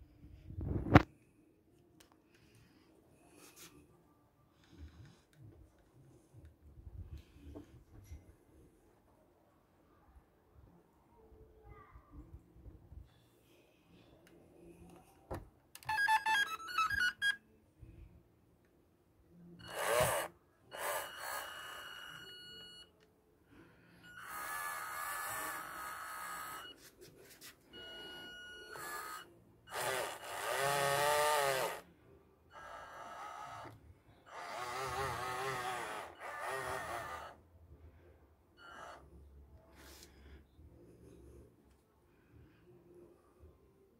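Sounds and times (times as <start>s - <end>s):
electronic beeps: 15.8s - 17.4s
electric motors whining: 19.7s - 22.2s, 24.2s - 26.7s, 28.7s - 31.8s, 32.6s - 37.4s.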